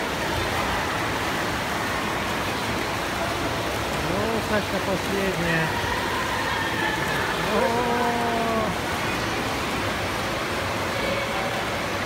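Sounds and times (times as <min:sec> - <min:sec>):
swimmers splashing water: 0:00.0 - 0:12.0
person shouting long: 0:07.5 - 0:08.8.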